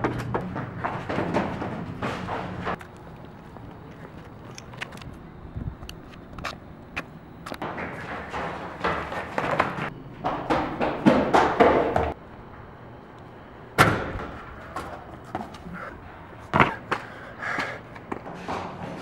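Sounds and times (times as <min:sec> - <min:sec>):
running footsteps on concrete stairs: 0:00.0 - 0:04.3, 0:07.6 - 0:12.2, 0:14.2 - 0:19.0.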